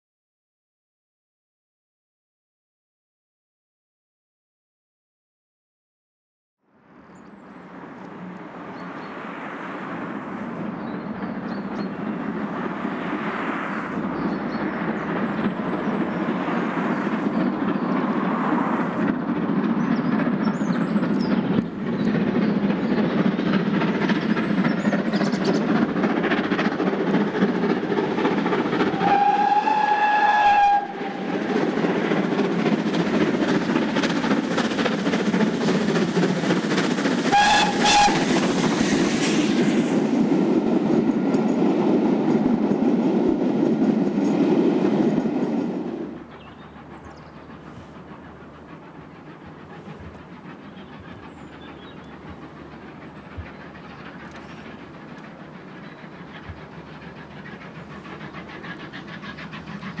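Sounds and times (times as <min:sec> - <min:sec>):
steam locomotive exhaust chuffing: 0:07.6 - 1:00.0
steam whistle: 0:29.0 - 0:31.3, 0:37.3 - 0:38.3.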